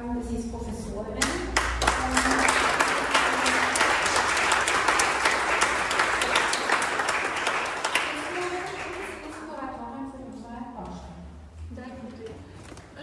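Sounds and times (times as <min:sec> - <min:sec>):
audience applauding: 0:01.2 - 0:09.4.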